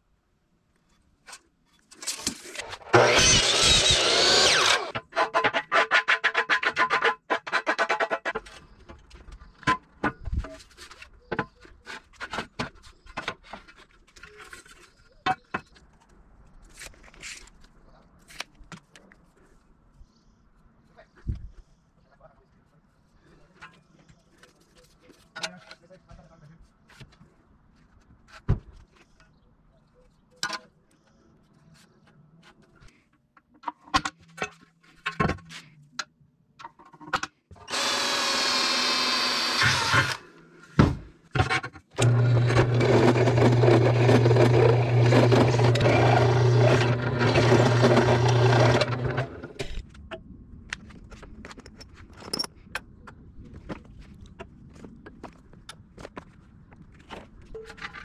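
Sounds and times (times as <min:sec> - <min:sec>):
power tool motor running: 0:02.9 - 0:05.0, 0:37.7 - 0:40.2, 0:42.0 - 0:49.5
clicks and knocks of parts handled: 0:49.6 - 0:55.9.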